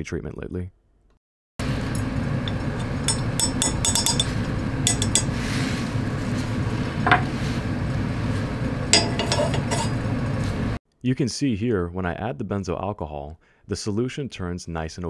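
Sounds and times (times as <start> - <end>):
steady low hum: 1.6 - 10.8
glass clinking: 3.0 - 5.3, 8.9 - 10.0.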